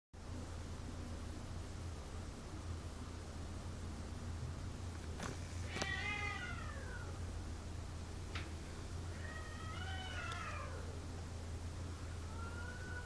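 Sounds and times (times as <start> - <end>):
cats yowling: 5.6 - 7.2, 9.0 - 11.1, 12.1 - 13.0.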